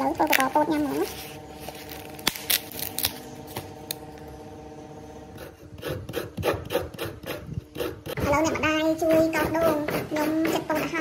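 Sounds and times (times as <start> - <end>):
steady hum: 0.0 - 11.0
coconut rasped against grater: 5.3 - 11.0.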